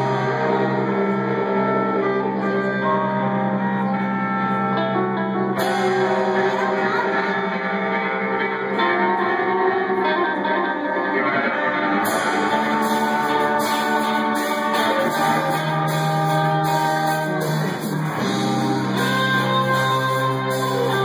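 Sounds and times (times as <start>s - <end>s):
electric guitars ringing chords: 0.0s - 21.0s
drums and cymbals beat: 12.0s - 21.0s.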